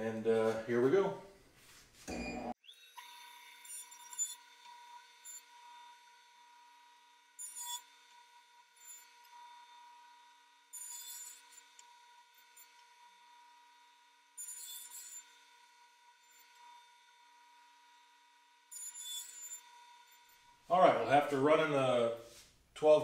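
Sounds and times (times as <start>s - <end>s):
jointer machine whine: 2.6s - 20.7s.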